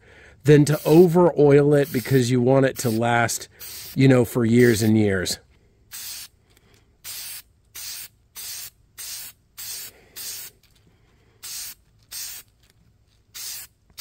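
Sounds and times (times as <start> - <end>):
aerosol spray bursts: 0.7 - 1.2, 1.8 - 4.0, 5.9 - 6.3, 7.0 - 10.6, 11.4 - 12.5, 13.3 - 14.0.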